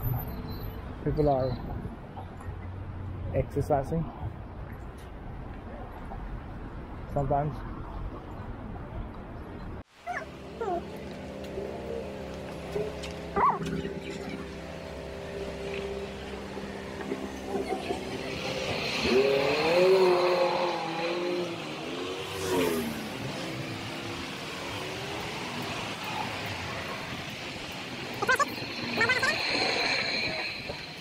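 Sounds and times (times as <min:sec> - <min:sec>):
vehicle engine accelerating past: 0:10.6 - 0:27.5.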